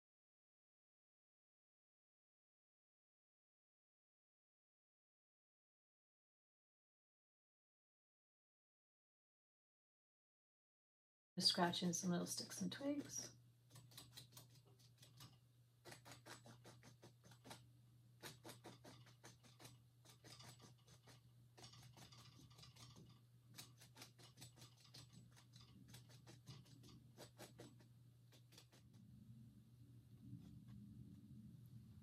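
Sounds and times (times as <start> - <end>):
faint low hum: 11.4 - 32.0
tool scratching wet paint on canvas: 13.7 - 29.0.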